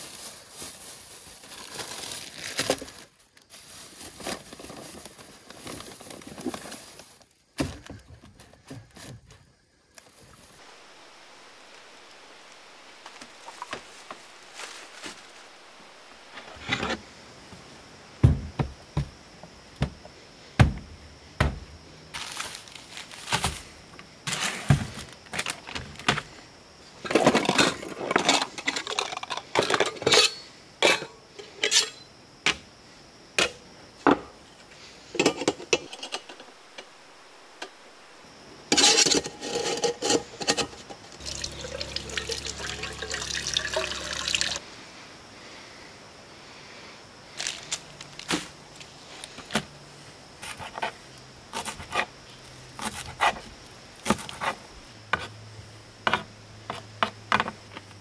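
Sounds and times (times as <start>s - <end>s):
water running into a pot: 41.2s - 44.6s.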